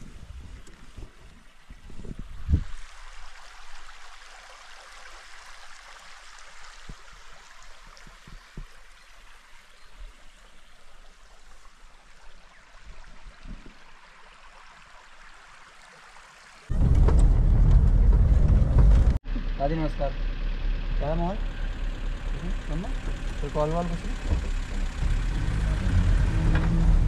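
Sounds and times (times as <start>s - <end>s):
low bumps: 16.7s - 20.2s, 20.8s - 27.0s.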